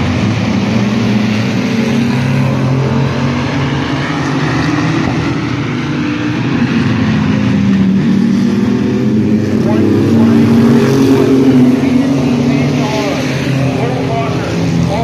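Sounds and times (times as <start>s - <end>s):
racing truck engines droning: 0.0s - 15.0s.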